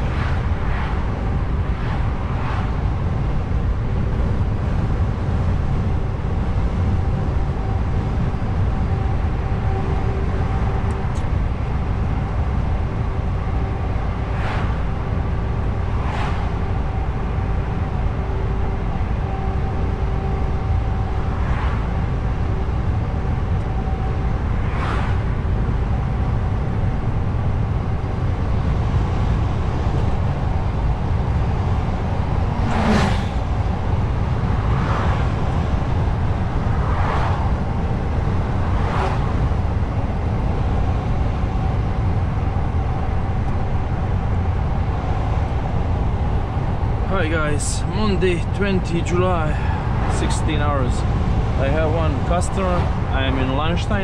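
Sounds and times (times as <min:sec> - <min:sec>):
faint steady whine: 0:00.0 - 0:54.0
truck engine and road drone: 0:00.0 - 0:54.0.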